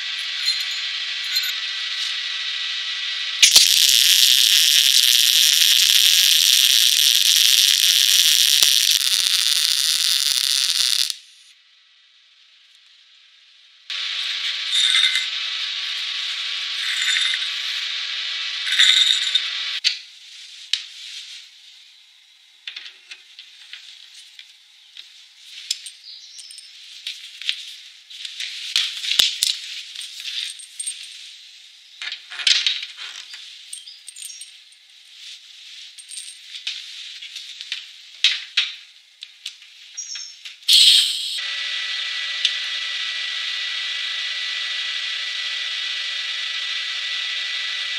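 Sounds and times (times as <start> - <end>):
welding cable fittings clinking: 3.4 - 11.4, 40.0 - 41.4.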